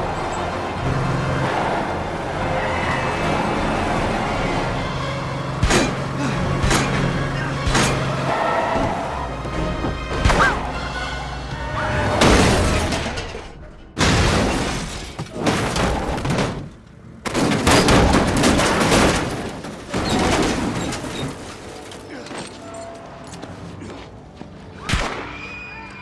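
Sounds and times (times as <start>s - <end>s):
action film music: 0.0s - 14.0s.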